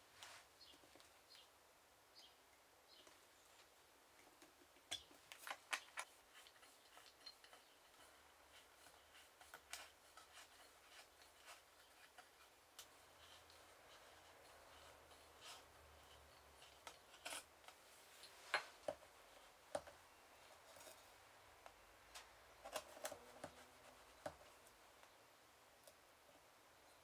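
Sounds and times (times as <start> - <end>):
point scratching leather: 5.8 - 17.5.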